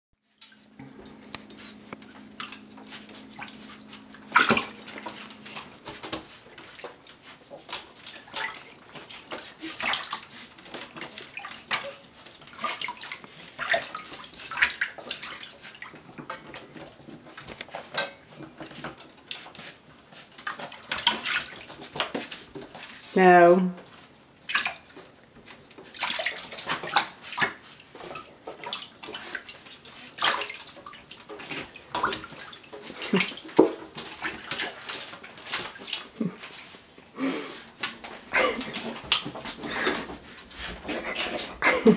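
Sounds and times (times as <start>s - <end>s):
low steady hum: 0.2s - 21.3s
water splashing and sloshing: 0.2s - 41.9s.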